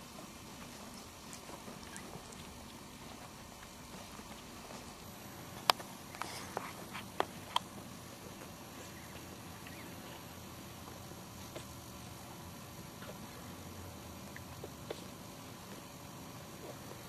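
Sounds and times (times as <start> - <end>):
faint steady background: 0.0 - 17.0
puppies squeaking: 1.7 - 2.5, 8.9 - 10.1.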